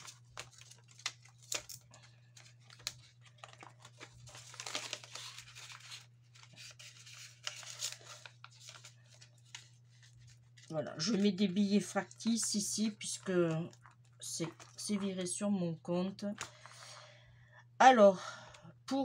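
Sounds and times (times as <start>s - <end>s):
paper banknotes rustling: 0.0s - 13.5s.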